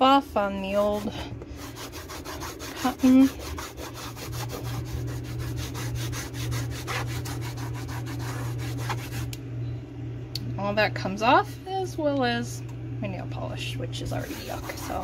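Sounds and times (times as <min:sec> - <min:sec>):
cotton ball scrubbing a panel: 0:00.0 - 0:09.4, 0:14.1 - 0:15.0
low steady hum: 0:00.0 - 0:15.0.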